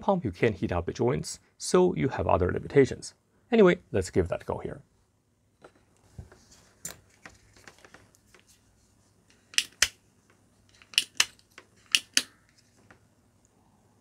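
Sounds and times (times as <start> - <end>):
desoldering plunger clicks: 9.5 - 10.0, 10.8 - 12.4.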